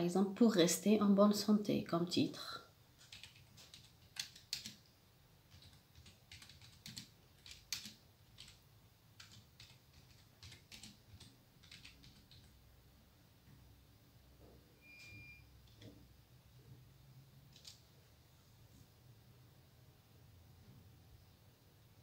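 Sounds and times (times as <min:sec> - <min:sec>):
faint keyboard typing: 0:03.0 - 0:12.7, 0:15.6 - 0:16.1, 0:17.4 - 0:17.9.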